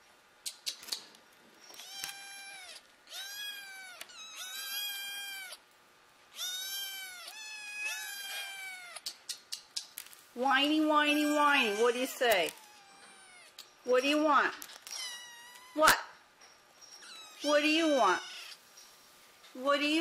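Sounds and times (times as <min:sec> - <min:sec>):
kittens meowing: 0:01.8 - 0:05.6, 0:06.3 - 0:09.2, 0:11.1 - 0:13.8, 0:14.8 - 0:16.0, 0:17.0 - 0:18.6.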